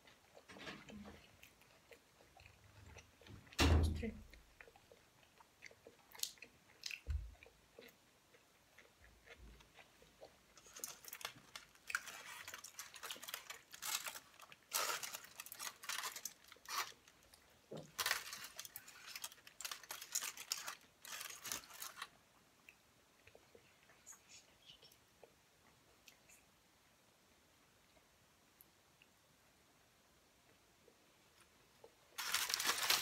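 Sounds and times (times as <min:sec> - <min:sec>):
aluminium foil crinkling: 0:10.6 - 0:22.1, 0:32.2 - 0:33.0.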